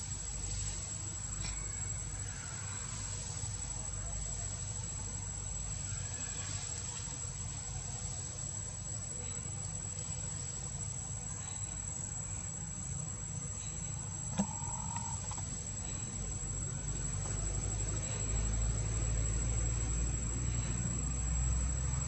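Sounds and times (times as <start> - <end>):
faint insect hum: 0.0 - 22.0.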